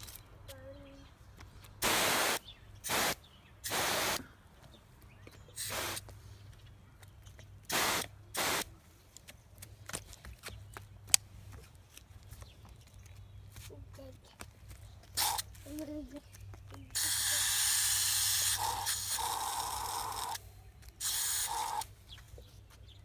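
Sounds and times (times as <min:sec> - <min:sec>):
hose nozzle spraying water: 0:01.8 - 0:04.2, 0:05.6 - 0:06.0, 0:07.7 - 0:08.6, 0:17.0 - 0:20.4, 0:21.0 - 0:21.9.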